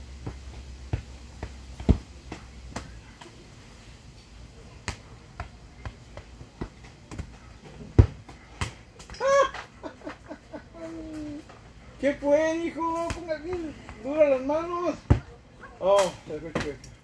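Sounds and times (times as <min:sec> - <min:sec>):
ball kicked thumps: 0:00.2 - 0:03.0, 0:04.8 - 0:09.2, 0:15.0 - 0:15.3.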